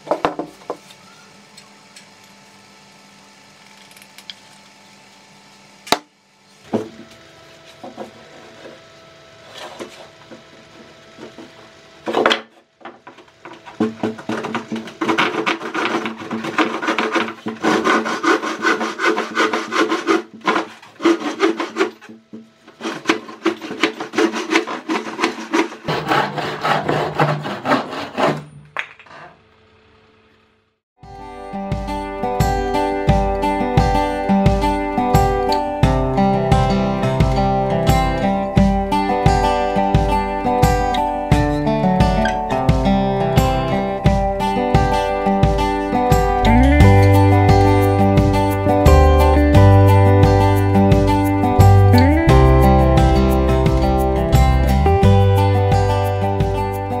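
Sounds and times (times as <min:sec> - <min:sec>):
saw cutting wooden board: 0:07.7 - 0:29.4
wooden saw frame knocking: 0:12.8 - 0:26.3.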